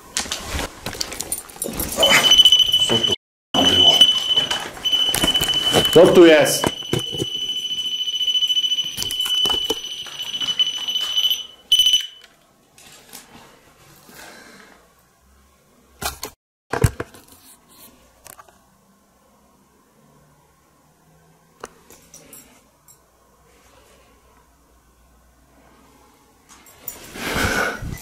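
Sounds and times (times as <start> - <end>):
high electronic alarm tone: 2.0 - 12.2.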